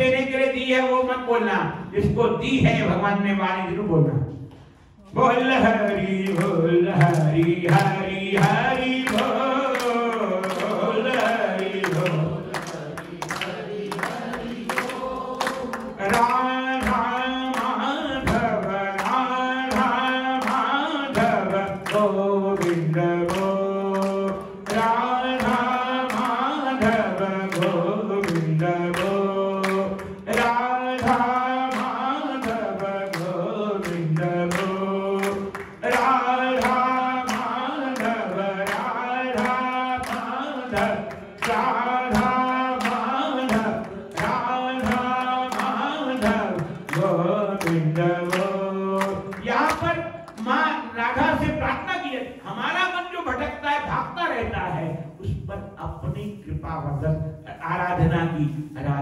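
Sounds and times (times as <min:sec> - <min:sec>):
group chanting: 0:05.0 - 0:50.5.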